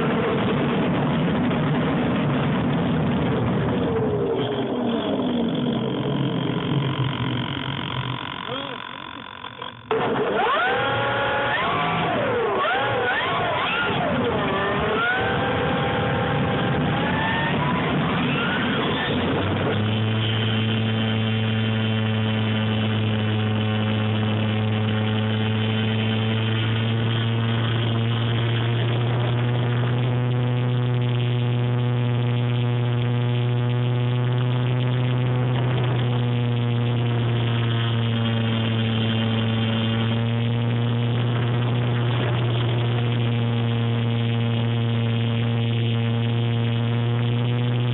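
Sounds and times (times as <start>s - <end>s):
model plane electric motor: 4.4s - 47.9s.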